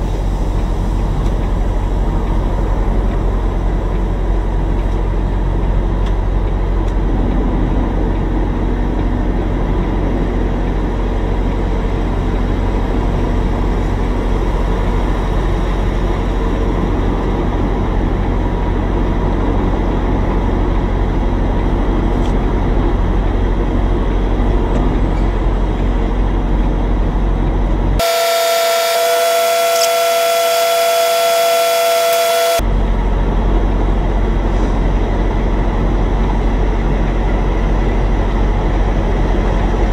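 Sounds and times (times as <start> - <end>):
diesel truck engine rumble: 0.0 - 39.9
truck horn blast: 28.0 - 32.6.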